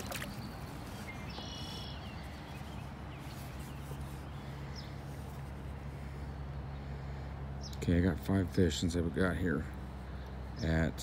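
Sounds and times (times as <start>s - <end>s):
bird calling: 0.0s - 5.2s
low background hum: 0.0s - 11.0s.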